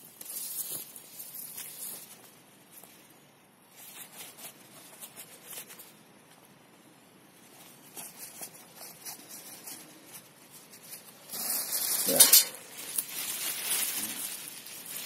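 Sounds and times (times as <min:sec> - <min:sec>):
plastic garbage bag rustling: 0:07.7 - 0:15.0.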